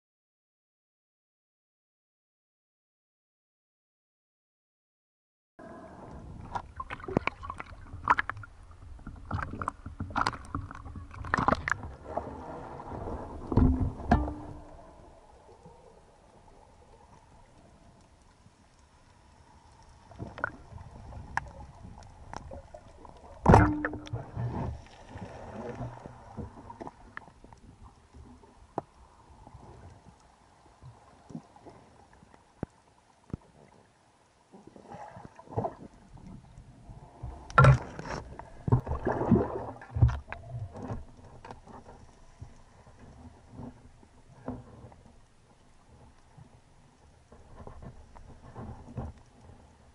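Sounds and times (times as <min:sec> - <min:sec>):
faint water background: 0:05.6 - 0:49.9
bubbling water: 0:06.4 - 0:12.1, 0:38.7 - 0:40.6
underwater clicks and knocks: 0:06.5 - 0:12.0, 0:13.4 - 0:14.8, 0:21.2 - 0:25.0, 0:37.4 - 0:43.8.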